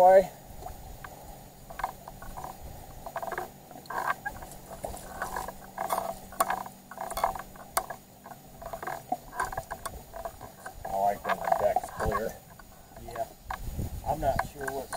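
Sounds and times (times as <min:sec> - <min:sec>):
fishing reel clicking: 0:01.7 - 0:14.9.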